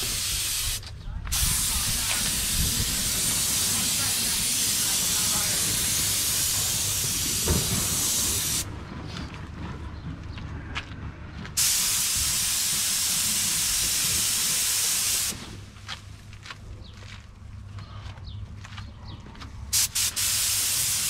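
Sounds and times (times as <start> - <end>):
paint spray gun hissing: 0.0 - 8.7, 11.6 - 15.5, 19.8 - 21.0.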